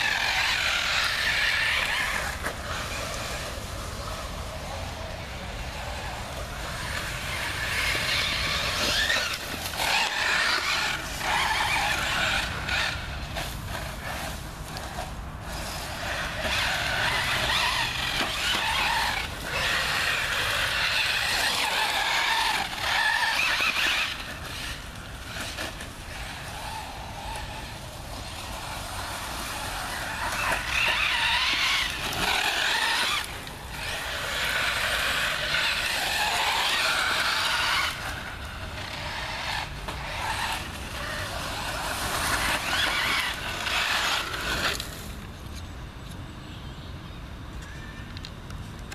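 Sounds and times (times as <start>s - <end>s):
rc car motor whining: 0.0s - 46.2s.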